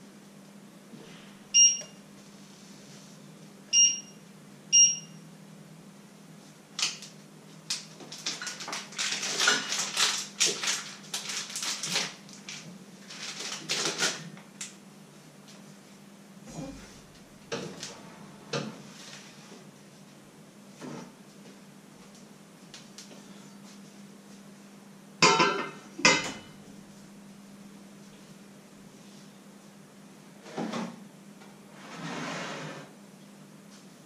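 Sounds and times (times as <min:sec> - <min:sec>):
stove control beeps: 0:01.6 - 0:02.0, 0:03.7 - 0:05.2
kitchen items rustling and clattering: 0:07.8 - 0:14.4
steady low hum: 0:14.3 - 0:32.0.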